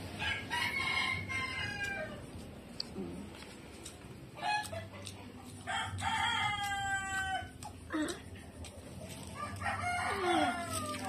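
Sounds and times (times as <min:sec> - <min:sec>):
rooster crowing: 0:00.2 - 0:02.3, 0:05.6 - 0:07.6, 0:09.3 - 0:11.0.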